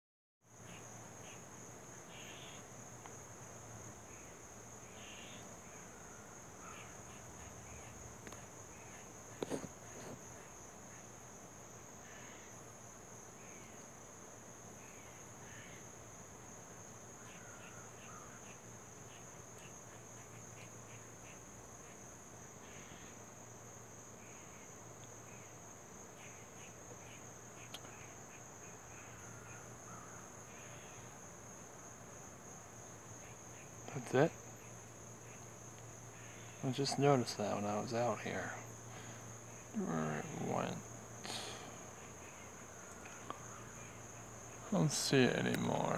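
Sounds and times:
crickets chirping: 0.4 - 45.9.

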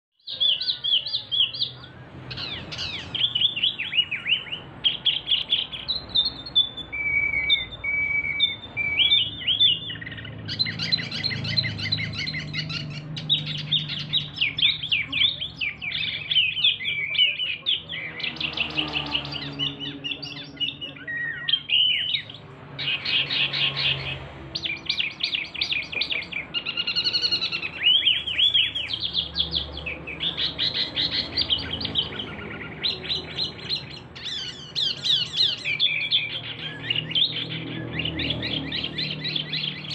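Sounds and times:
songbird chattering and trilling: 0.2 - 39.9
bird whistled notes: 2.3 - 29.6.

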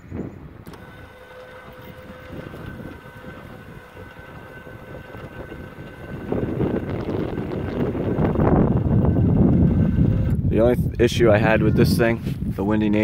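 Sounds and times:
actuator motor whine: 0.0 - 12.1
wind buffeting on microphone: 0.0 - 13.0.

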